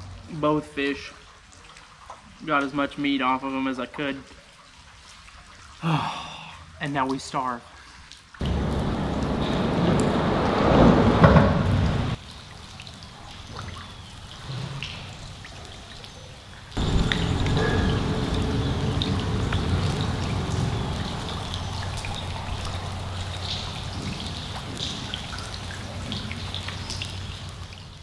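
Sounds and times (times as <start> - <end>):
rain falling on lake water: 0.0 - 28.0
drip ticks: 12.2 - 28.0
steady low rumble: 16.7 - 27.8.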